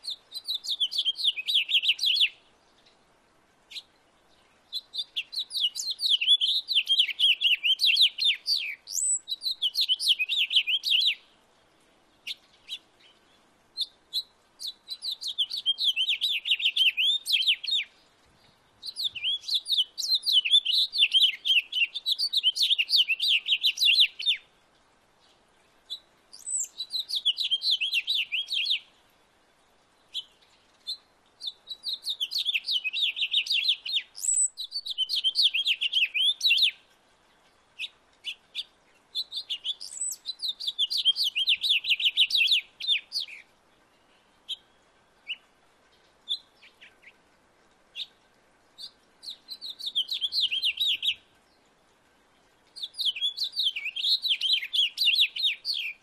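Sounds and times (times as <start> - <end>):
house finch singing: 0.0 - 2.3, 4.7 - 11.2, 14.6 - 17.9, 18.8 - 24.4, 26.4 - 28.8, 31.4 - 36.8, 37.8 - 43.4, 48.8 - 51.2, 52.8 - 56.0.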